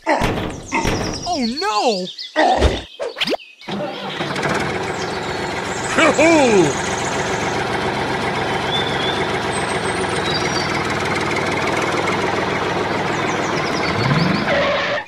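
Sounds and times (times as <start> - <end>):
tractor engine chugging: 3.7 - 14.2.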